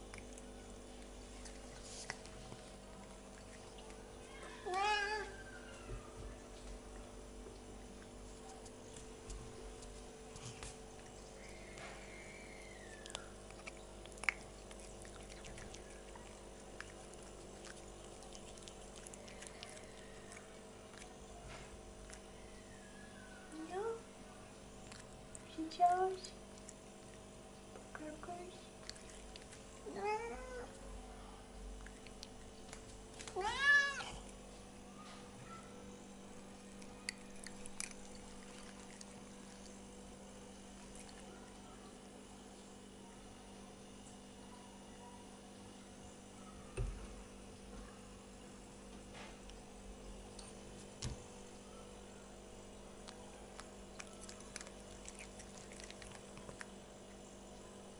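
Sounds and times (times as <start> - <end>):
tongue and teeth clicks: 0.0 - 4.0, 12.8 - 21.2, 24.8 - 25.5, 26.2 - 27.3, 28.6 - 29.8, 31.8 - 33.4, 36.5 - 39.9, 40.6 - 41.3, 52.9 - 57.2
cat licking and chewing: 0.0 - 5.4, 6.3 - 22.9, 23.5 - 35.4, 36.1 - 43.0, 52.4 - 57.9
steady low hum: 0.0 - 57.9
cat licking food off spoon: 13.0 - 21.2, 28.8 - 29.9, 36.6 - 39.8, 53.0 - 57.2.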